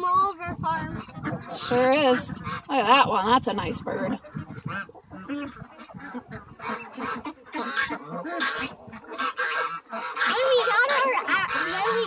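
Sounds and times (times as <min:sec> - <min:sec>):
geese and ducks calling: 0:00.4 - 0:12.0.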